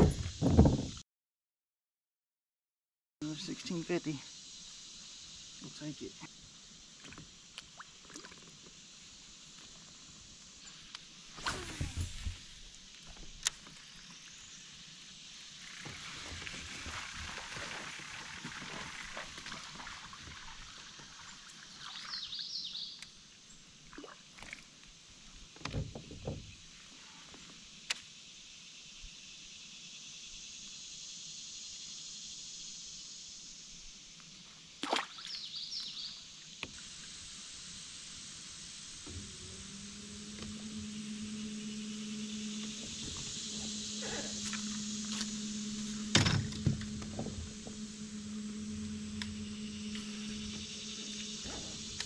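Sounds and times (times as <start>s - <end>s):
knocks against kayak hull: 0.0s - 1.0s
water sloshing and splashing: 7.0s - 8.7s, 15.7s - 22.2s, 23.8s - 24.8s, 34.8s - 35.4s.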